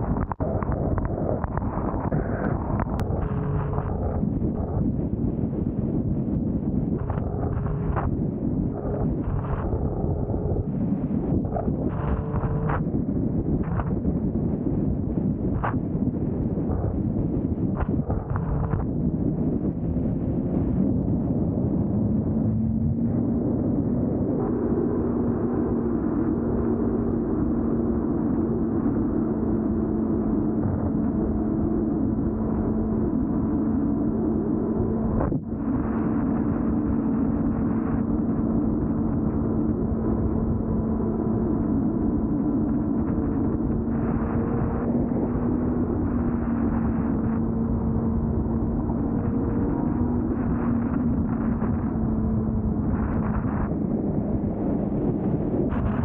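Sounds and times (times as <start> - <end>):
wind and road rush: 0.0 - 56.0
motorcycle engine running: 7.0 - 12.9, 16.6 - 20.8.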